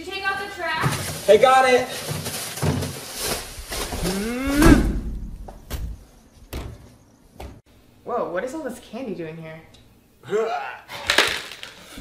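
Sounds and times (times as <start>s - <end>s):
plastic bag rustling: 0.1s - 5.0s
rising pitched sound: 3.7s - 5.7s.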